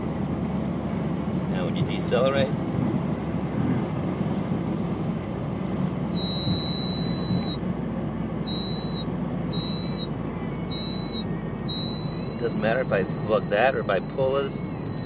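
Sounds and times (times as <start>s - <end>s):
low engine rumble: 0.0s - 15.0s
high-pitched vacuum valve whistle: 6.1s - 7.6s, 8.4s - 15.0s.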